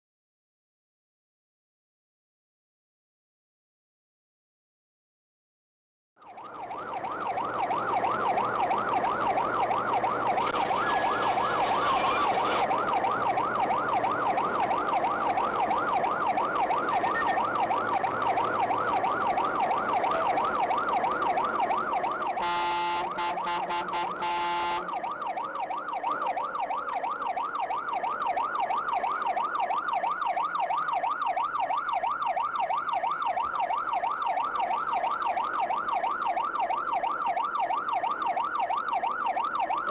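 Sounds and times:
siren wailing warble: 6.2 - 39.9
steady blaring horn tone: 22.3 - 25.0.

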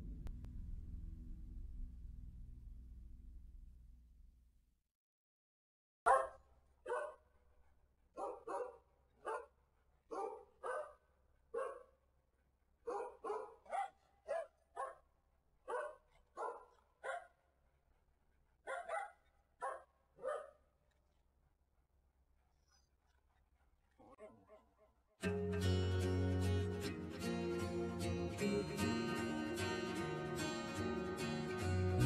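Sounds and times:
dogs barking: 6.1 - 7.2, 8.2 - 9.5, 10.1 - 12.0, 12.8 - 15.0, 15.7 - 17.4, 18.6 - 20.6.

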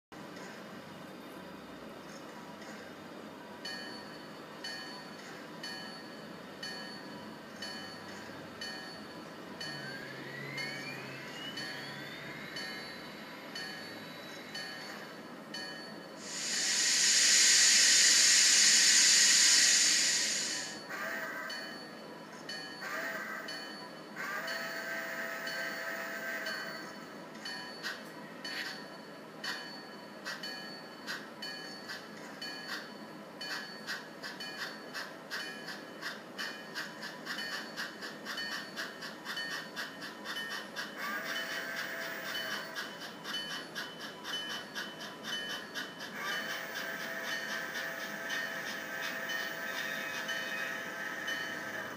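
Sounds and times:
model locomotive steam chuffs: 5.6 - 21.9, 22.5 - 51.9
steady held tone: 9.6 - 15.0, 16.2 - 21.0
loud hiss of steam: 16.2 - 21.0.

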